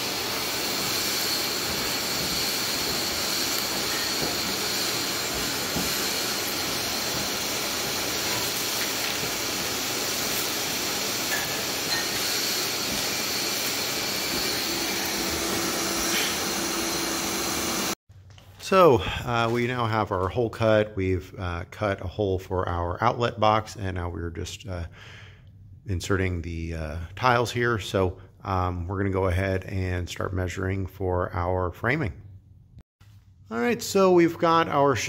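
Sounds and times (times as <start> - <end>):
electric tool whirring: 0.0 - 18.0.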